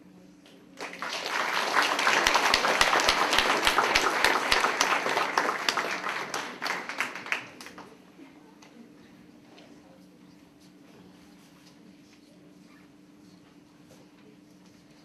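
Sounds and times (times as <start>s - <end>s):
audience applauding: 0.8s - 8.0s.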